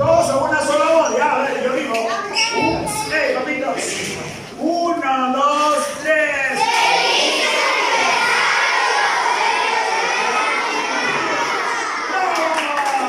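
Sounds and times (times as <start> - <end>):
children shouting and cheering: 6.5 - 13.0.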